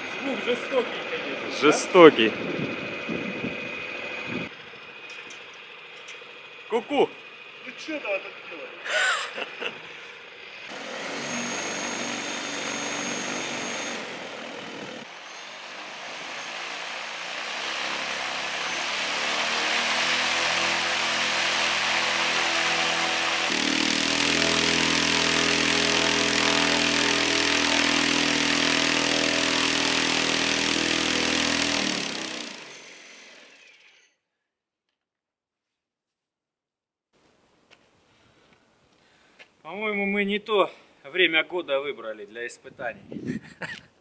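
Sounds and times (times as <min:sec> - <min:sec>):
electric motor whine: 0:00.0 - 0:08.6, 0:09.6 - 0:34.1
propeller rushing air: 0:00.0 - 0:33.5.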